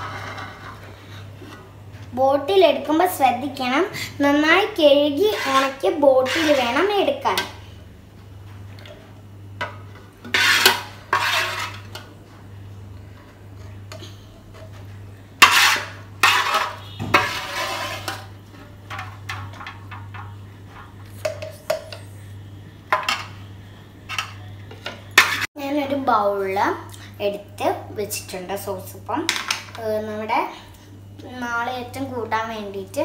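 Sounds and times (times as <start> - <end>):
spoon scraping and clinking on pot: 15.4 - 18.3.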